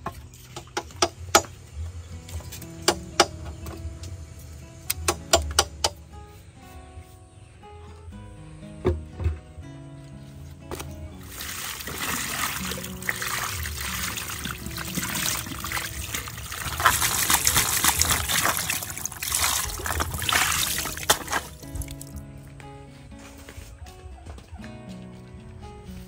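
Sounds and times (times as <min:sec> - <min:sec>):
water pouring and splashing: 0:10.7 - 0:22.2.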